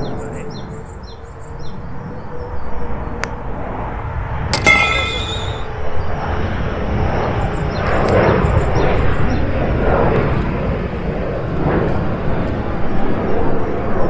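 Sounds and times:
brief high ringing: 4.6 - 5.7.

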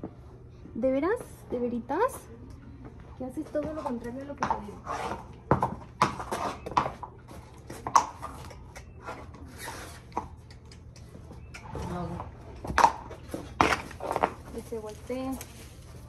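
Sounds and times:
horse hooves on concrete: 0.0 - 16.0.

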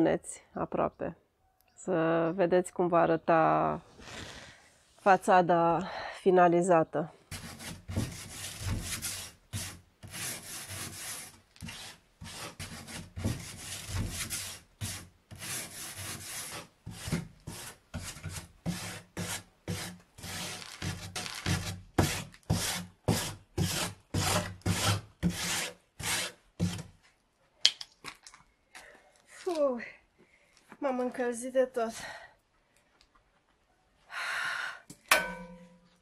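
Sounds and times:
wire brush scrubbing wood: 7.3 - 26.9.

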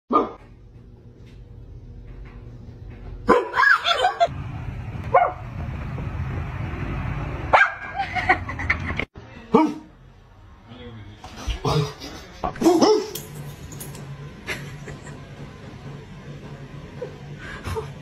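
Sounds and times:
dog barks and yips: 3.3 - 4.0.

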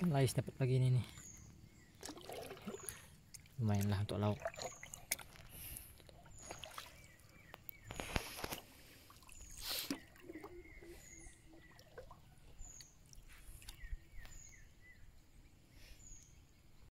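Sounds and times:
high falling bird chirps: 4.6 - 16.5.

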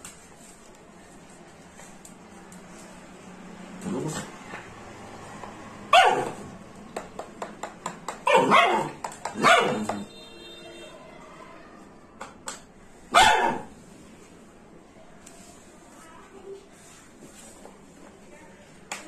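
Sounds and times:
small dog barking: 5.9 - 6.5, 8.2 - 10.1, 13.1 - 13.7.

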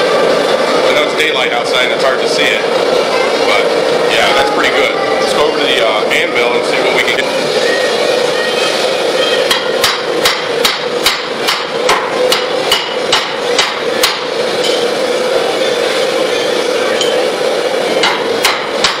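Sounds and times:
steady rushing noise: 0.0 - 12.0
hammer striking steel on anvil: 9.5 - 14.9, 18.0 - 19.0.

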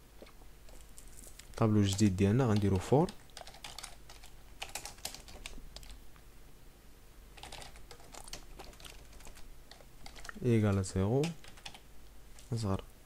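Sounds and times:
typing on keyboard: 1.9 - 6.0, 7.4 - 11.8.

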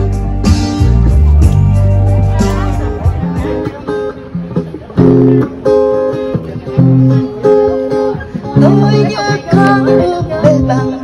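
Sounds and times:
acoustic guitar strumming: 0.0 - 11.0
woman singing: 8.6 - 11.0.

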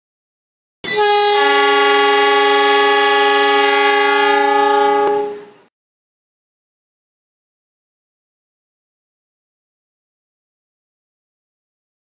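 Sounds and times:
train air horn blast: 0.9 - 5.7.

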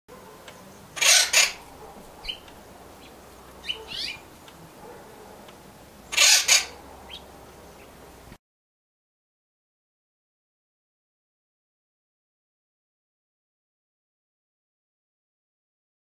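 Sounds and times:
woodpecker calling: 0.2 - 8.2.

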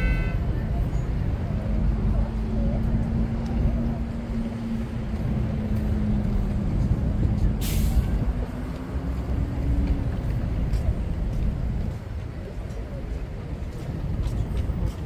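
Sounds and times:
city road traffic: 0.0 - 15.0
large vehicle engine humming: 0.0 - 15.0
bus air-brake hiss: 7.6 - 8.2.

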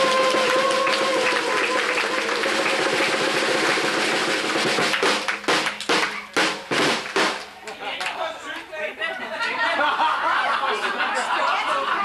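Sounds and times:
people applauding: 0.0 - 8.7.

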